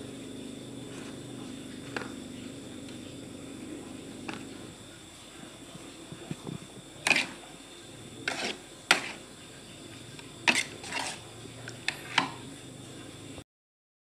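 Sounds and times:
utensil scraping a metal wok: 0:07.0 - 0:07.4, 0:08.2 - 0:09.4, 0:10.1 - 0:12.4.

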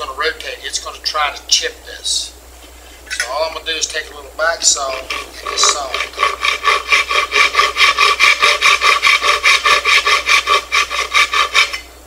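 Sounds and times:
back saw cutting wood: 0:04.7 - 0:11.9.

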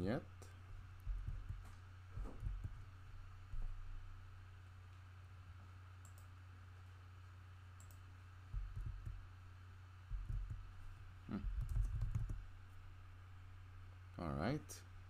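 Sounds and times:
steady low hum: 0:00.0 - 0:15.0
computer keyboard keystrokes: 0:11.4 - 0:12.4.

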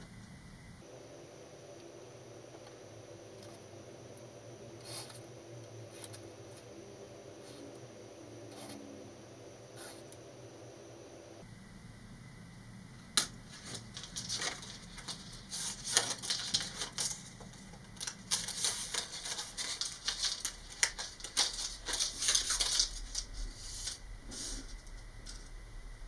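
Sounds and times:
plastic sheet crackling: 0:13.3 - 0:25.4.

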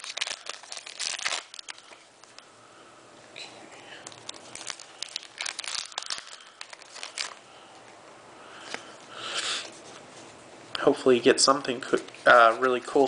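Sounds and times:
foil wrapper crinkling and tearing: 0:00.0 - 0:02.0, 0:04.0 - 0:07.4.

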